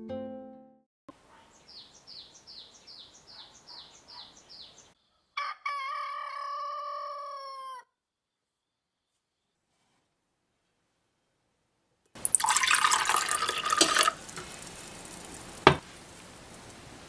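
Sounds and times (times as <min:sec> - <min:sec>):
rooster crowing: 0:05.2 - 0:08.0
faint hiss: 0:13.8 - 0:17.0.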